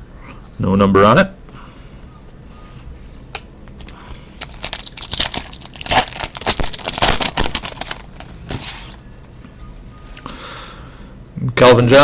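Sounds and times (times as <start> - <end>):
foil wrapper tearing and crinkling: 3.8 - 9.0.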